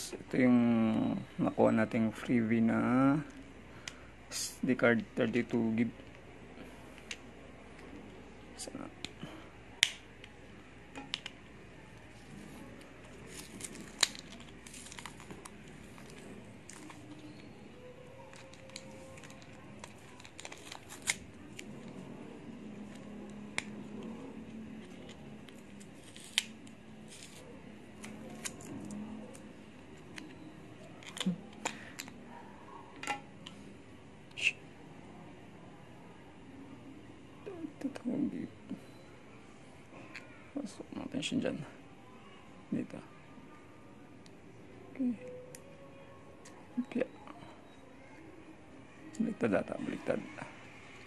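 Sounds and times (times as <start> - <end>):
packet crinkling: 13.1 - 17.5, 18.3 - 22.0.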